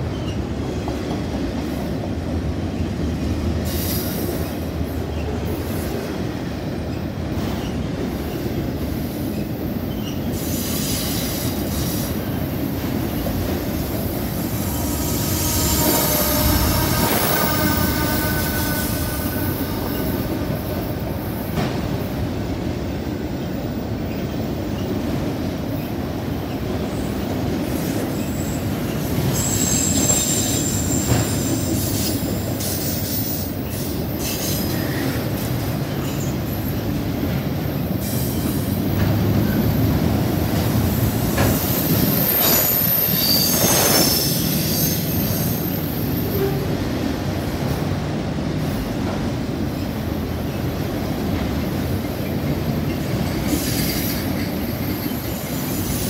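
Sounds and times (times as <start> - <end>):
train wheels rumbling on rails: 0.0 - 56.0
high-pitched wheel squeals: 14.6 - 20.8, 41.5 - 46.7.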